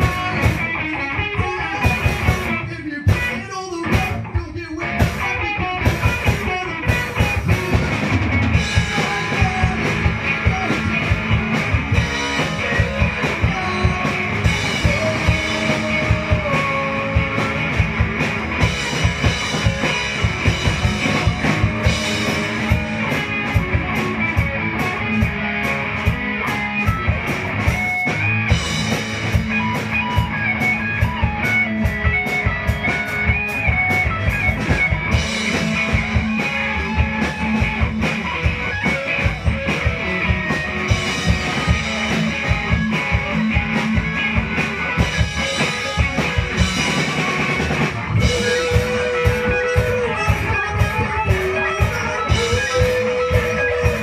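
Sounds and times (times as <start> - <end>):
bass guitar: 0.0 - 54.0
drum kit beat: 0.0 - 54.0
electric guitars: 0.0 - 54.0.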